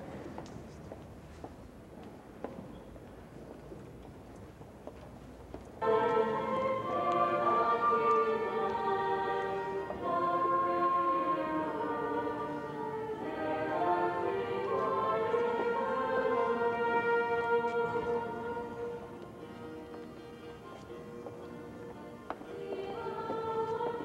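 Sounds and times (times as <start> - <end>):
choir singing a slow hymn: 5.8 - 19.7, 21.8 - 24.0.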